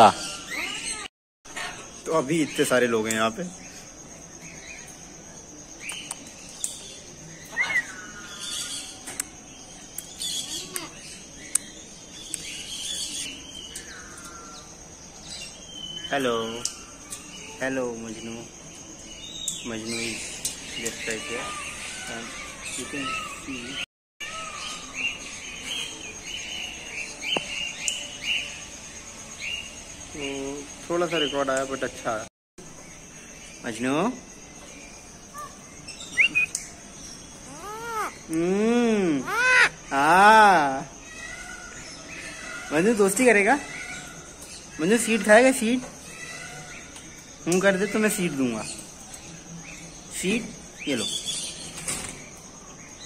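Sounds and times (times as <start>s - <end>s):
parrots squawking: 0.0s - 2.1s, 37.4s - 38.4s, 39.2s - 40.4s
small birds chirping: 0.0s - 53.0s.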